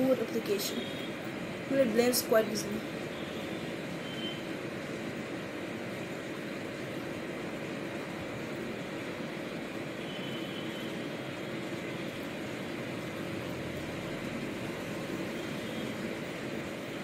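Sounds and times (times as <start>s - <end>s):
faint constant hum: 0.0s - 17.0s.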